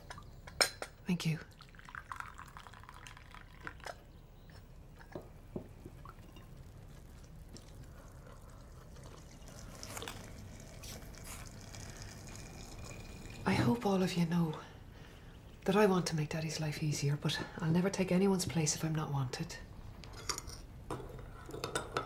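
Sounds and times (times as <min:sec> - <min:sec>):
tea pouring into a cup: 0:01.2 - 0:04.5, 0:05.6 - 0:14.8
cups and crockery clinking: 0:09.0 - 0:13.8, 0:20.0 - 0:22.0.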